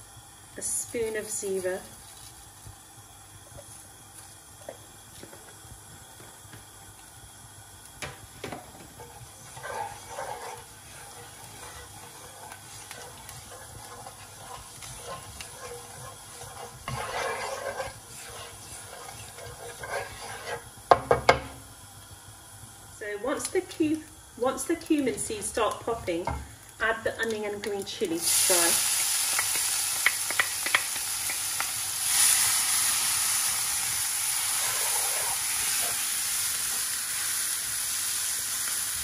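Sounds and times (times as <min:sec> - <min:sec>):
seeds sizzling in oil: 0:00.0 - 0:39.0
swishing stirs in pan: 0:08.3 - 0:21.2, 0:28.2 - 0:37.4.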